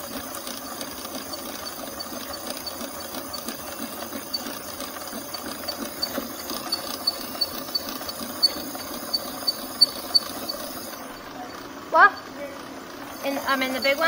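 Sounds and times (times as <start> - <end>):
regular clicking: 0.0 - 11.2
drain-cleaning machine running: 0.0 - 14.0.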